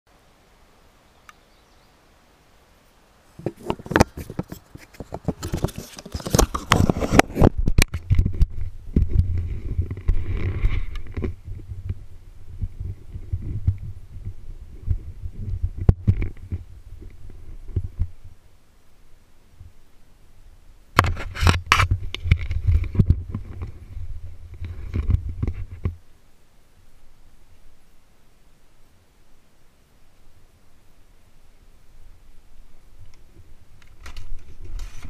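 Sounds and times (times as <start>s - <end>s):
camera handling knocks and scraping: 3.4s - 8.4s
dirt bike engine rumbling: 3.4s - 18.4s, 21.0s - 26.0s.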